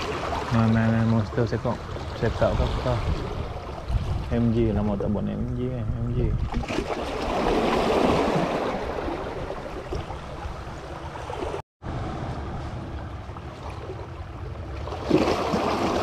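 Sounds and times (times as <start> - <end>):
waves splashing against rocks: 0.0 - 4.3, 6.5 - 11.6, 13.4 - 16.0.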